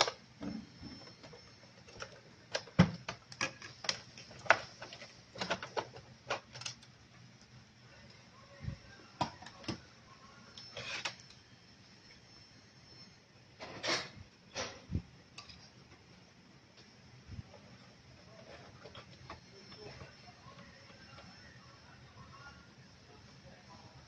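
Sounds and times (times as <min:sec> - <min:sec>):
clicks and knocks handling parts: 0:00.0 - 0:07.6.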